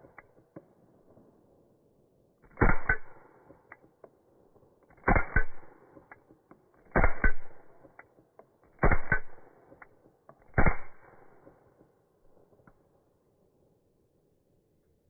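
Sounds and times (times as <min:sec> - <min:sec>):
suppressed pistol shots: 0:02.5 - 0:03.9, 0:05.0 - 0:06.2, 0:06.8 - 0:08.0, 0:08.7 - 0:09.9, 0:10.5 - 0:11.6.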